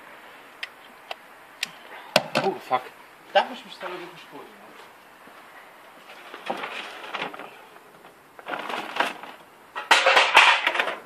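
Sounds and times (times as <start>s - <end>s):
packaging crinkling and rustling: 6.1s - 9.4s.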